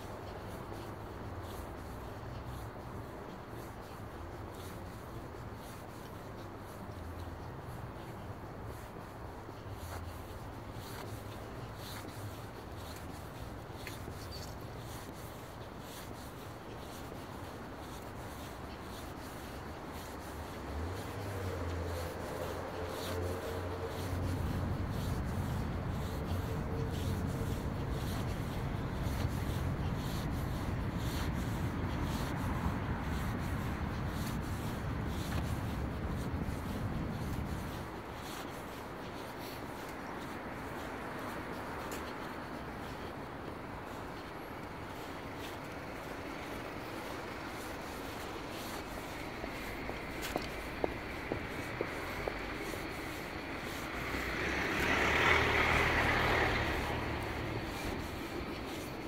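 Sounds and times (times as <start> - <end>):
faint footsteps on asphalt: 0.0 - 59.0.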